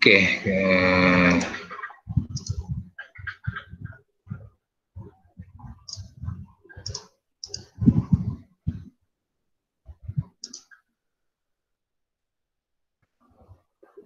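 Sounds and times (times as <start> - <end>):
mouse and keyboard clicking: 2.2 - 4.0, 5.9 - 7.8, 10.4 - 10.8.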